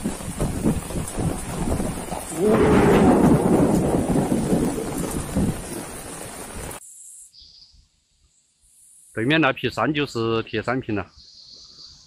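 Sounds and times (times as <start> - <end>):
heavy rain: 0.0 - 6.8
wind rumble on microphone: 0.0 - 6.8.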